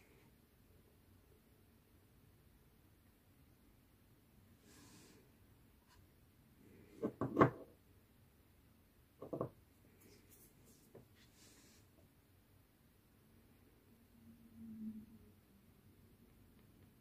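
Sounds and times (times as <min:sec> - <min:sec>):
objects knocking on hard surface: 0:07.0 - 0:07.7, 0:09.2 - 0:09.6.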